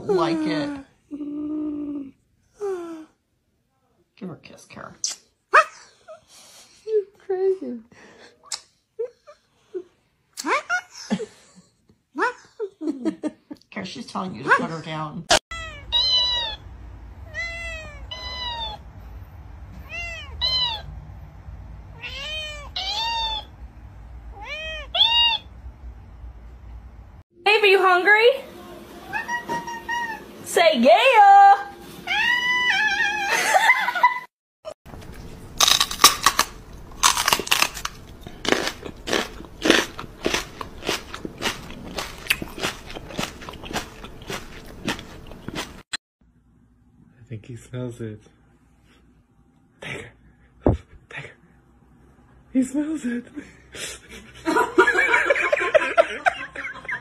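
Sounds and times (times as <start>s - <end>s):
wet lip smacks kissing: 5.0s - 5.3s, 8.5s - 8.7s
cat meowing: 15.5s - 16.6s, 17.2s - 18.8s, 19.8s - 20.9s, 22.0s - 23.5s, 24.3s - 25.5s, 32.1s - 33.3s.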